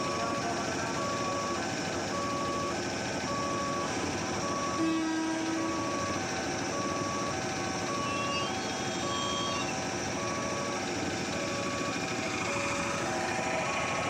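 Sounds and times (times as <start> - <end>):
level crossing alarm beeping: 0.0 - 14.0
passing electric train: 4.1 - 5.6.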